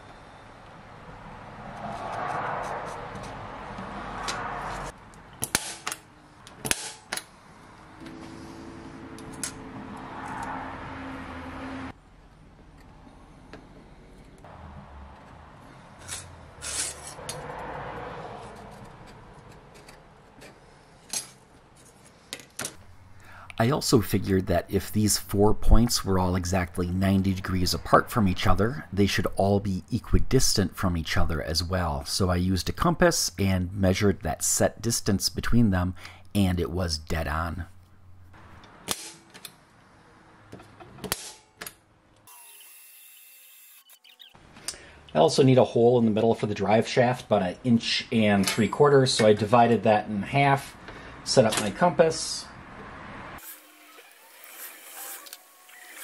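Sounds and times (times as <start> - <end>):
ruler and marker on steel plate: 16.0 - 17.4.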